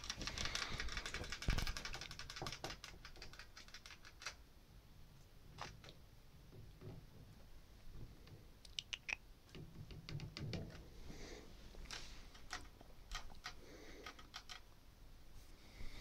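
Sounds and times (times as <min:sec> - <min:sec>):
rustling of cage handling: 0:00.0 - 0:04.4.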